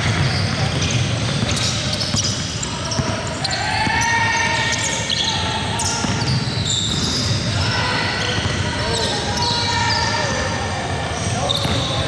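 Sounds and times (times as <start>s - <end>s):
basketball bouncing: 0.0s - 3.2s, 5.9s - 7.1s.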